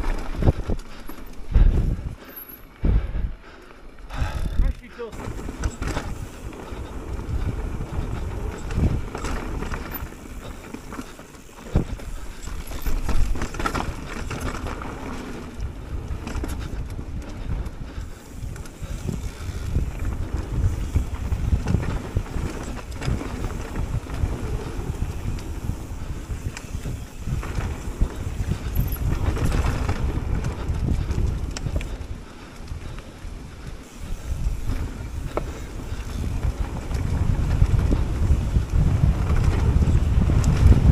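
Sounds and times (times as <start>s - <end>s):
bike knocking and rattling: 0.0s - 40.9s
wind rushing over microphone: 0.0s - 40.9s
tyres rumbling on dirt: 4.1s - 32.2s.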